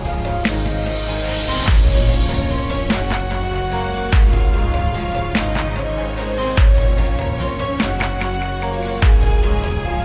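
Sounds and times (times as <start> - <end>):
electronic music with synth chords: 0.0 - 10.0.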